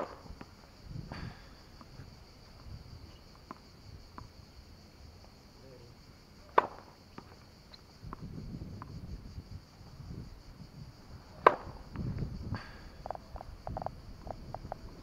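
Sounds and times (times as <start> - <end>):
racket striking ball: 0.0 - 0.5, 6.5 - 7.4, 11.4 - 11.9
faint tennis ball bounces: 3.3 - 4.4, 6.5 - 9.0, 11.4 - 14.8.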